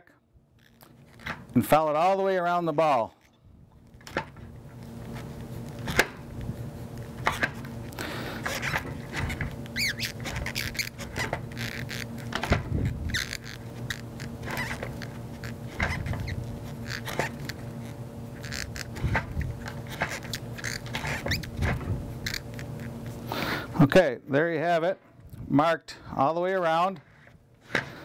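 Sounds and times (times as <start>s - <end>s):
faint steady hum: 0.0s - 28.0s
marker pen scratching and squeaking: 8.5s - 23.2s.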